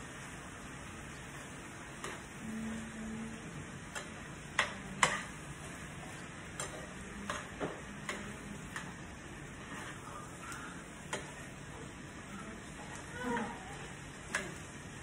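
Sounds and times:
faint sizzle of food cooking: 0.0 - 15.0
metal spoon clinking against pan: 6.5 - 9.0.

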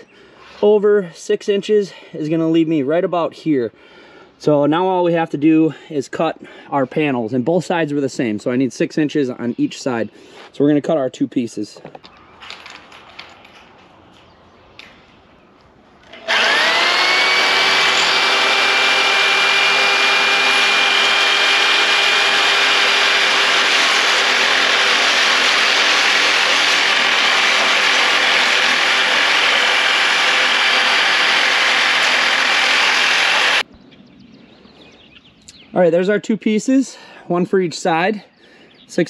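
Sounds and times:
metal shear motor whine: 16.0 - 33.6
shear cutting metal roofing panel: 16.0 - 33.6.

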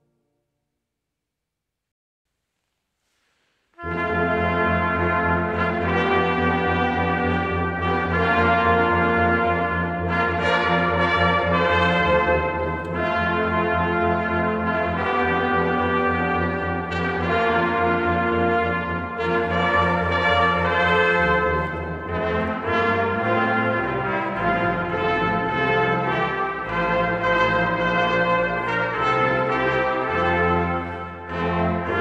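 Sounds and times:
brass choir playing held chords: 3.8 - 32.0.

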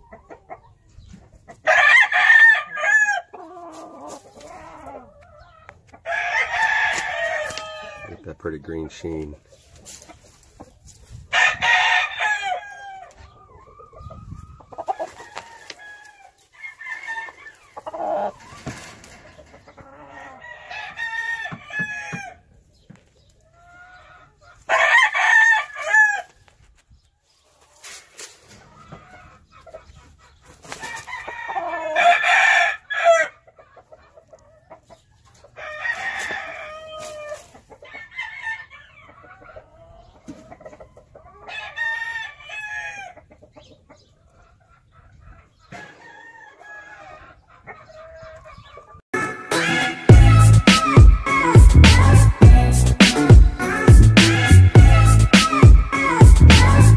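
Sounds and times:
chickens clucking: 0.0 - 11.6, 12.2 - 56.9
roosters crowing: 1.5 - 8.2, 11.2 - 22.6, 23.5 - 26.5, 30.6 - 33.5, 35.4 - 43.3, 45.6 - 56.9.

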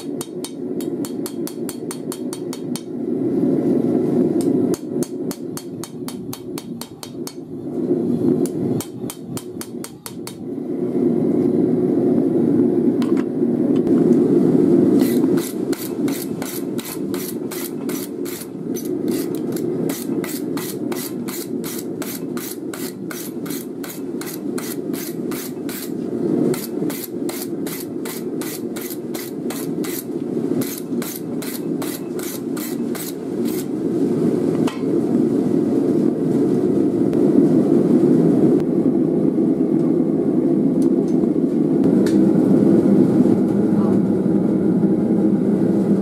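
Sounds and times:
hammer striking blade on anvil: 0.0 - 2.9
low rumble: 7.4 - 9.0, 10.4 - 16.5, 33.2 - 46.0.

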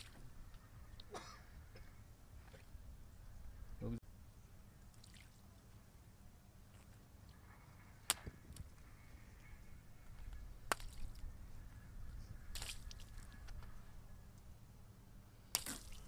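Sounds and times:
light splashing in puddle: 4.9 - 5.4, 10.7 - 11.2, 12.5 - 13.6, 15.5 - 16.0.

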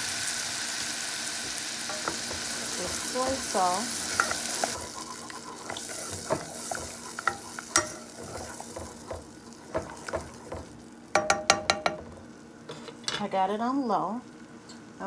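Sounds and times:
butter and garlic sizzling: 0.0 - 12.5
spoon scraping and tapping pot: 4.1 - 12.0.

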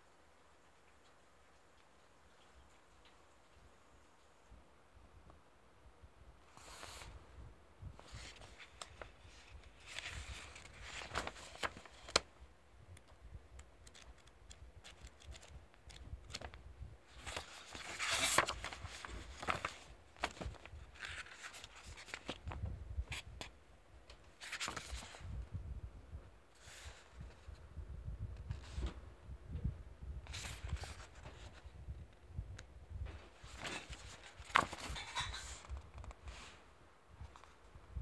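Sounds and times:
paper pages rustling: 6.5 - 7.1, 8.0 - 12.3, 13.8 - 23.5, 24.2 - 25.3, 30.3 - 31.7, 33.2 - 36.5.

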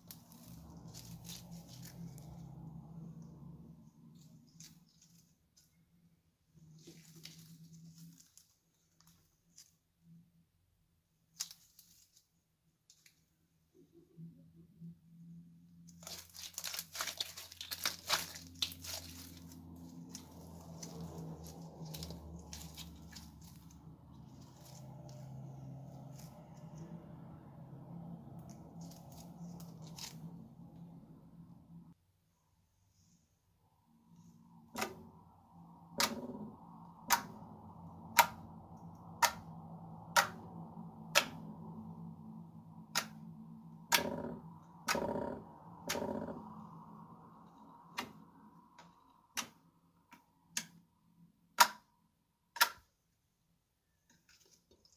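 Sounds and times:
slime crackling and popping: 16.0 - 23.8.

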